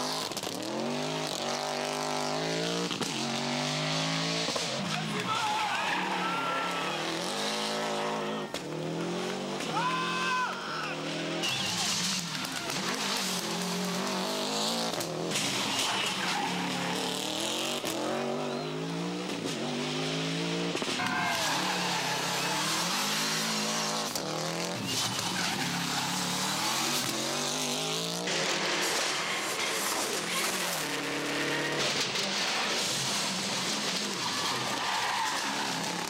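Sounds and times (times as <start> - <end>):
rally car engines revving hard: 0.0 - 36.0
tyre squeal: 21.0 - 23.2, 24.7 - 27.0.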